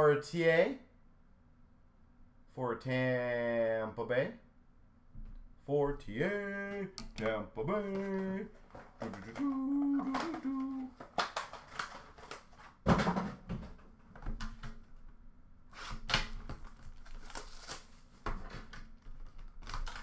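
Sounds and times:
man humming: 0:06.0 - 0:11.0
wrappers crinkling and tearing: 0:08.0 - 0:12.7, 0:16.5 - 0:18.1, 0:19.2 - 0:20.0.

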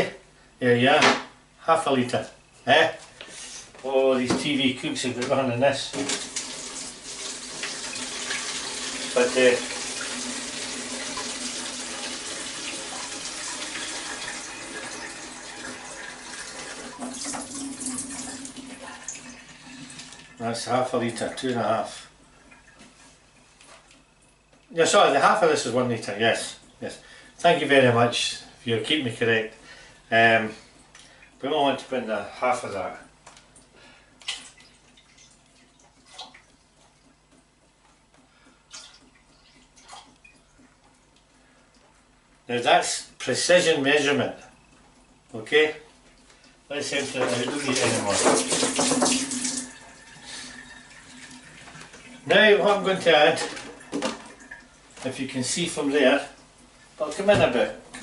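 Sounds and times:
water splashing into a pot: 0:47.0 - 0:50.0
tap running into plastic jug: 0:47.2 - 0:49.6.

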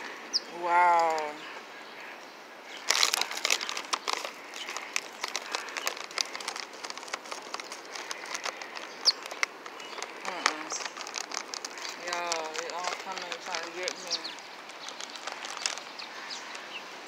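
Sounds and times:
high bird chirp: 0:00.0 - 0:03.0, 0:07.6 - 0:11.0, 0:11.7 - 0:17.0
food wrapper crinkling: 0:02.8 - 0:16.7.

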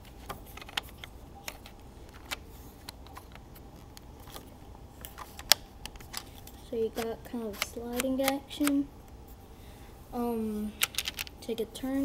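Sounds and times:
plastic bricks clicking: 0:10.8 - 0:11.4.

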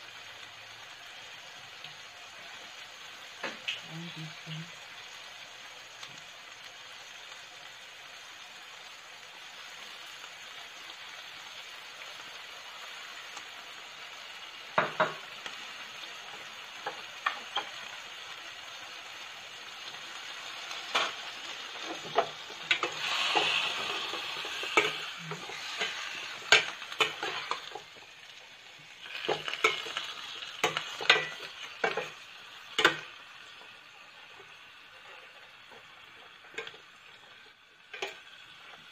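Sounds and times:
chicken sizzling in frying pan: 0:00.0 - 0:38.9
metal spoon scraping pan: 0:21.8 - 0:27.8.

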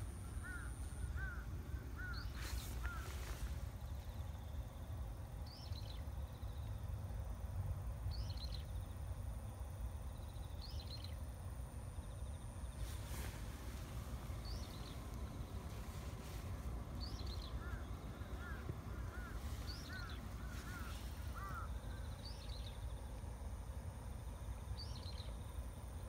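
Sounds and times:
lower arched bird calls: 0:00.0 - 0:04.0, 0:12.8 - 0:23.2
high falling bird call: 0:15.6 - 0:22.5.

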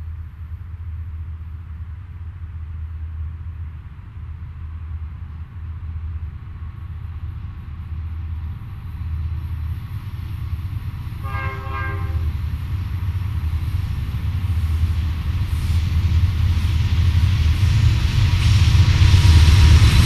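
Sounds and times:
diesel locomotive engines rumbling: 0:00.0 - 0:20.0
train horn blast: 0:11.2 - 0:12.4.

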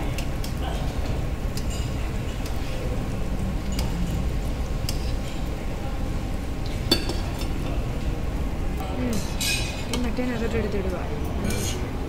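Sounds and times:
steady low background noise: 0:00.0 - 0:12.0
metal tongs clinking on pan: 0:09.1 - 0:10.1.

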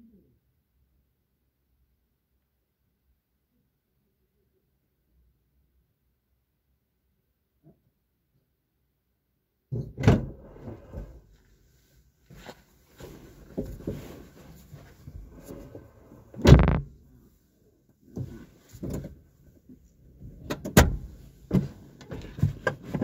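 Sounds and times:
knocks and thumps: 0:16.4 - 0:16.9.

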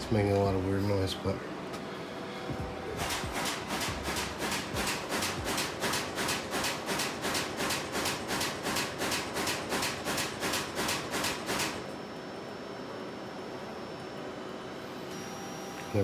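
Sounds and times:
printer machine hum: 0:00.0 - 0:16.0
printer rapid clicking: 0:03.0 - 0:11.8.

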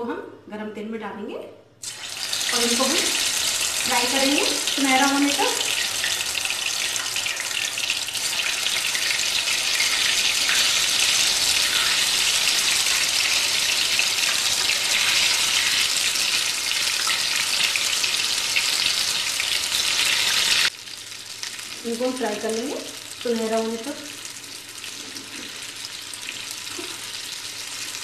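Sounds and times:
food deep-frying in hot oil: 0:01.8 - 0:28.0.

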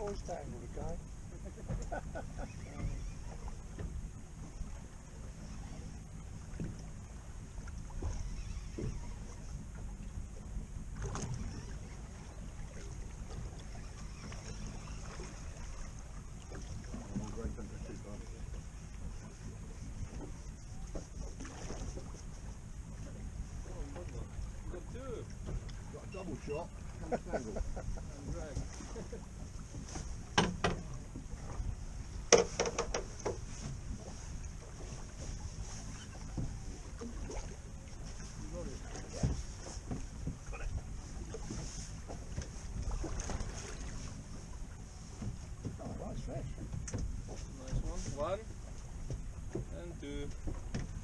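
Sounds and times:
boat engine idling: 0:00.0 - 0:51.0
water noise: 0:00.0 - 0:51.0
wind: 0:00.0 - 0:51.0
boat gear knocking and clicking: 0:29.7 - 0:31.3, 0:32.2 - 0:33.5, 0:45.2 - 0:48.3, 0:49.0 - 0:51.0.

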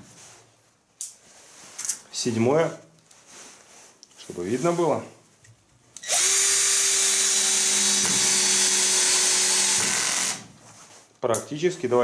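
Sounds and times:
cordless drill motor whine: 0:06.0 - 0:10.4.

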